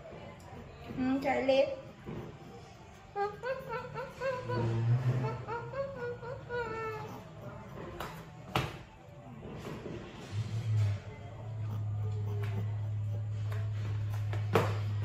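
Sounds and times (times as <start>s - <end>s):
puppy whimpering: 2.5s - 8.0s.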